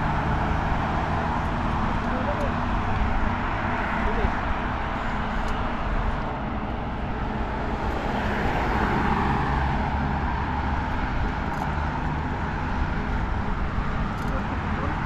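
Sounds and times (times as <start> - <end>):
cars passing: 0.0 - 15.0.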